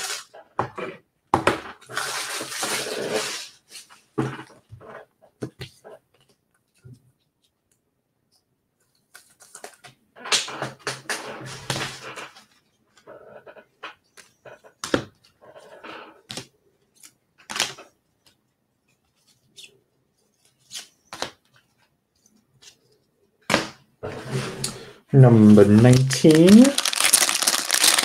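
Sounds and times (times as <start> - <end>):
plastic wrapper crinkling: 25.2 - 28.0.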